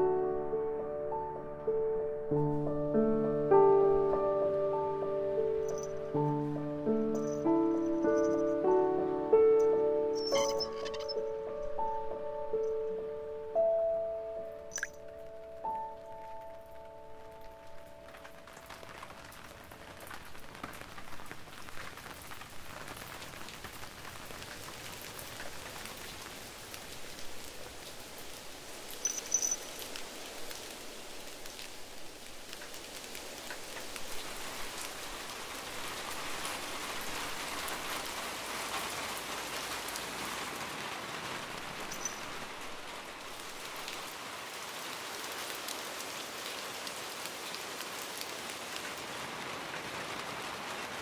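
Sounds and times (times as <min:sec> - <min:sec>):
rain falling: 0:02.3 - 0:51.0
brief high chirp: 0:10.2 - 0:11.2.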